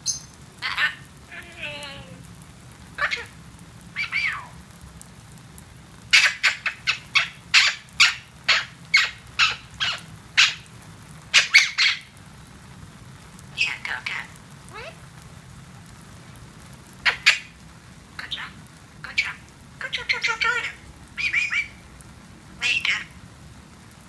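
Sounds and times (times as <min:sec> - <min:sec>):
parrot chattering: 0:00.0 - 0:02.2, 0:03.0 - 0:04.6, 0:06.1 - 0:10.7, 0:11.3 - 0:12.1, 0:13.5 - 0:15.0, 0:17.0 - 0:17.6, 0:18.2 - 0:21.8, 0:22.6 - 0:23.2
water shower spraying: 0:00.0 - 0:02.3.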